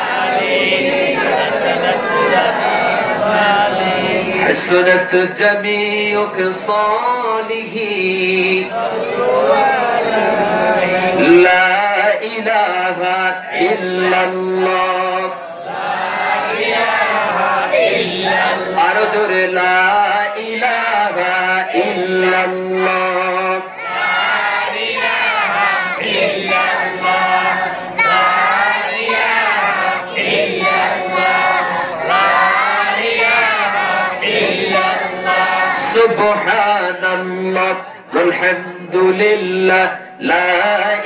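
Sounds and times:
overlapping voices: 0:00.0 - 0:41.0
man chanting through loudspeakers: 0:03.2 - 0:15.7, 0:17.0 - 0:23.8, 0:31.2 - 0:41.0.

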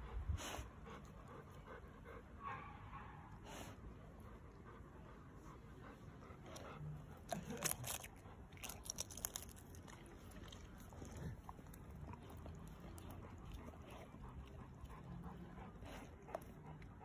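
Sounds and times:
puppy mouthing broken shell: 0:07.3 - 0:10.0
eggshell cracking and crunching: 0:07.5 - 0:10.0.

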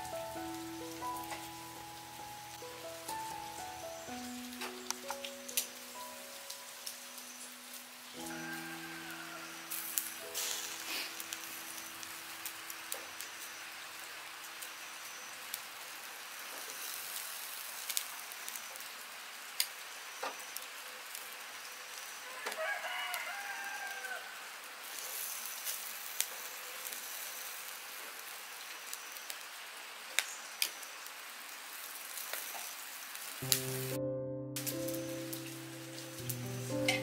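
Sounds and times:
music: 0:00.0 - 0:12.9, 0:33.4 - 0:37.0
meat sizzling on charcoal grill: 0:00.0 - 0:34.0, 0:34.6 - 0:37.0.

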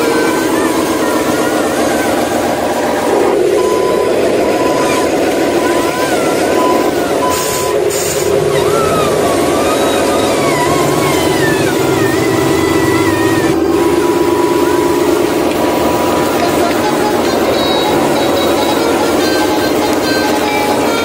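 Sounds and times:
diesel truck engine running: 0:00.0 - 0:21.0
air hisses: 0:07.3 - 0:08.4.

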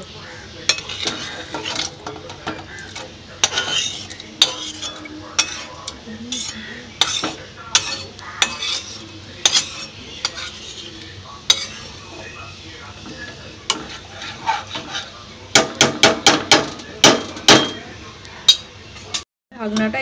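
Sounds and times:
spoon scraping and knocking on pan: 0:00.6 - 0:12.4, 0:13.0 - 0:19.2.

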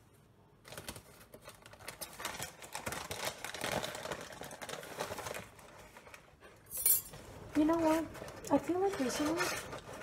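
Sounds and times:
plastic bag crinkling: 0:00.6 - 0:06.4.

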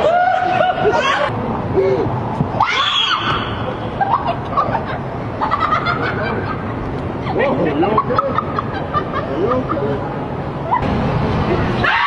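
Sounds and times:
people laughing: 0:00.0 - 0:02.1, 0:03.7 - 0:10.8.

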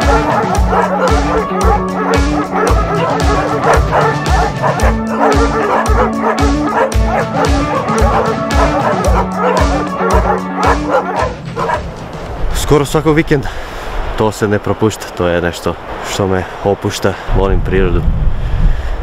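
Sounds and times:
hounds barking and yelping: 0:00.0 - 0:12.0
background music with steady beat: 0:00.0 - 0:12.5.

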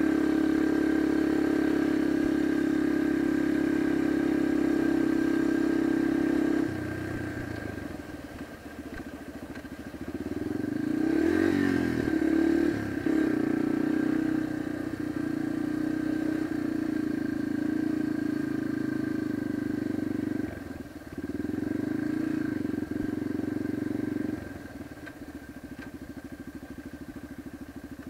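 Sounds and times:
dirt bike engine running: 0:00.0 - 0:28.0
engine idling: 0:16.5 - 0:28.0.

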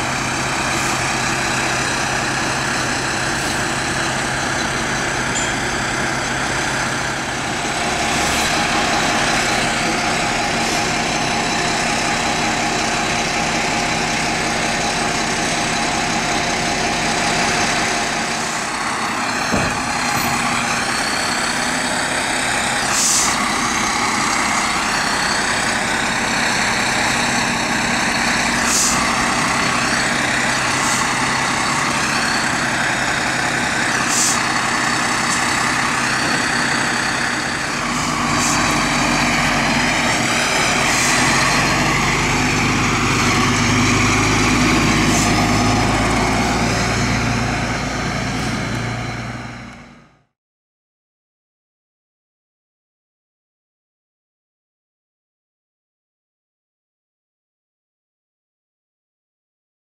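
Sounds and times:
diesel engine idling: 0:00.0 - 0:50.0
air hissing: 0:22.9 - 0:23.4, 0:28.6 - 0:29.1, 0:34.1 - 0:34.5.

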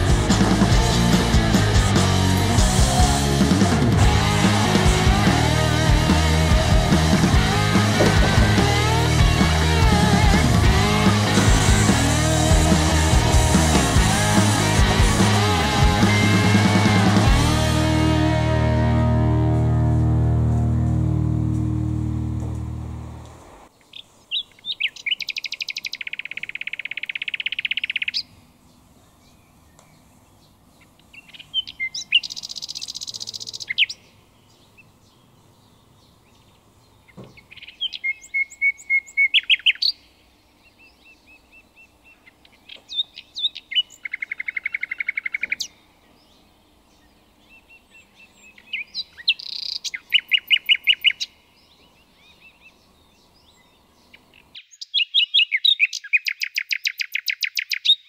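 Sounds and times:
songbird trills and chirps: 0:23.7 - 0:58.0.

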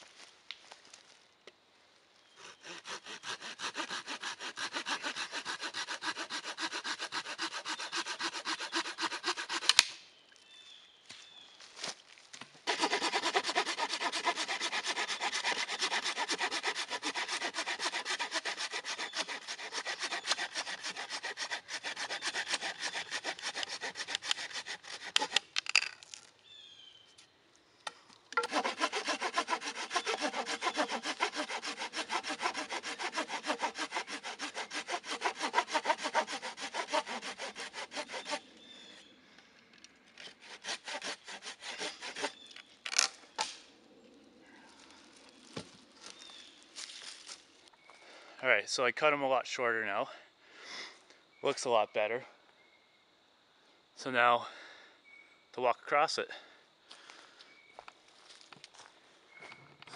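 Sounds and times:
hand saw cutting wood: 0:02.4 - 0:09.9, 0:12.6 - 0:25.5, 0:28.4 - 0:38.4, 0:40.2 - 0:43.0.

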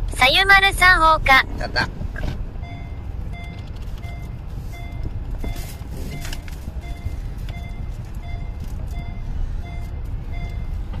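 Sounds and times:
car cabin rumble: 0:00.0 - 0:11.0
two-tone electronic beeps: 0:02.6 - 0:10.8.

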